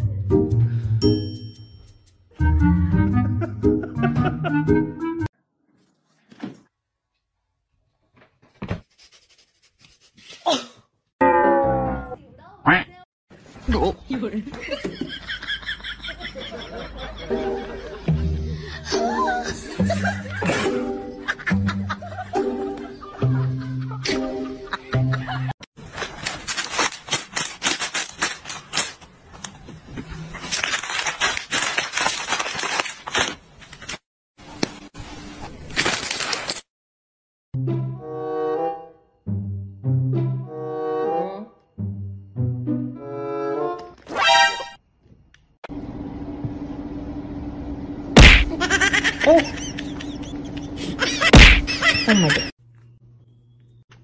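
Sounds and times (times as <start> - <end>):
plastic snack bag crinkling: 25.8 - 29.6, 30.2 - 34.0, 35.5 - 36.7
loud slaps: 48.2 - 48.6, 51.3 - 51.8.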